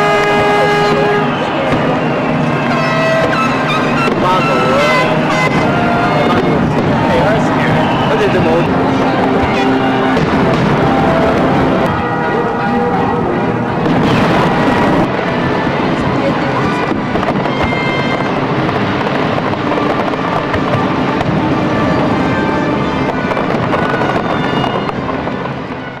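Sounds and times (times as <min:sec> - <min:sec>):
fireworks bursting: 0:00.0 - 0:12.4, 0:13.1 - 0:26.0
crowd voices: 0:00.0 - 0:26.0
music: 0:19.6 - 0:24.9.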